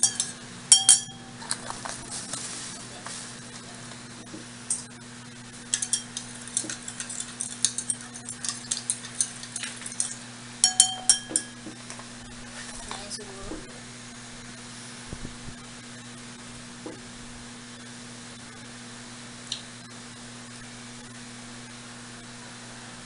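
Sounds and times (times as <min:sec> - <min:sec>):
spoon clinking against glass: 0:00.0 - 0:01.4, 0:05.7 - 0:11.6.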